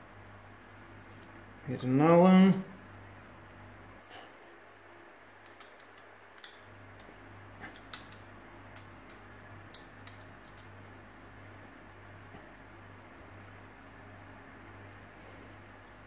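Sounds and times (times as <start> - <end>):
low steady hum: 0.0 - 16.0
screwdriver and bolts clicking: 5.4 - 6.6, 7.8 - 10.7.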